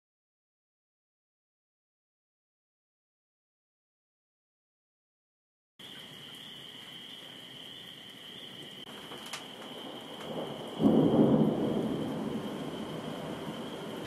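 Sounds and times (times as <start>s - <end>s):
steady rain hiss: 5.8s - 14.0s
thunderclap rumbling: 8.6s - 14.0s.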